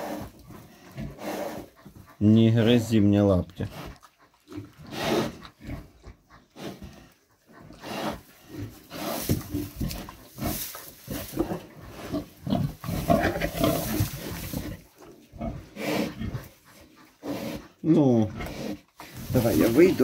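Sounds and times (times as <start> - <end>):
pig grunting: 0.0 - 20.0
rustling through straw: 7.8 - 17.6, 18.6 - 20.0.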